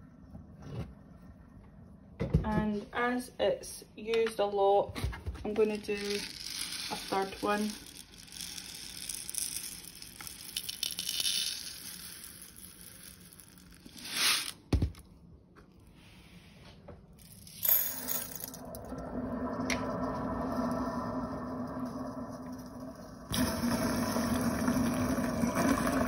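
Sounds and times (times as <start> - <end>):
granules rattling into plastic cap: 5.6 - 14.6
fizzing in drain: 18.6 - 26.0.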